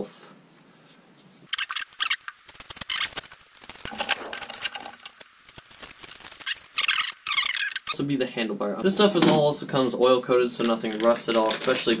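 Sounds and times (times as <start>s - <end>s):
plastic bag crinkling: 1.5s - 7.9s, 10.7s - 12.0s.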